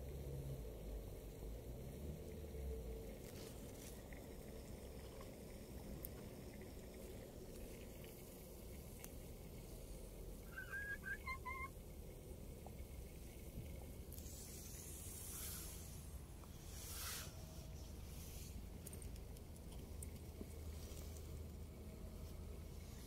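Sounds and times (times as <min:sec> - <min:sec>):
wood fire rumble and hiss: 0:00.0 - 0:23.0
bird chirping: 0:10.5 - 0:11.7
fire crackles: 0:11.8 - 0:23.0.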